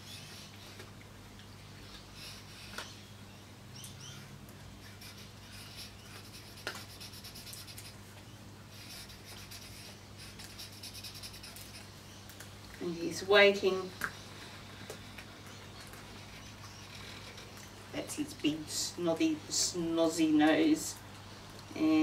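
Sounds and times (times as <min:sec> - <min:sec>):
low steady hum: 0:00.0 - 0:22.0
marker scratching on paper: 0:04.8 - 0:08.0, 0:08.8 - 0:11.8.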